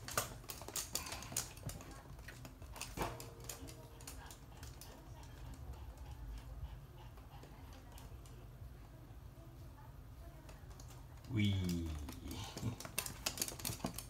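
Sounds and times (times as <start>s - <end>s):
dog claws clicking on hard floor: 0.0s - 5.6s, 10.6s - 14.0s.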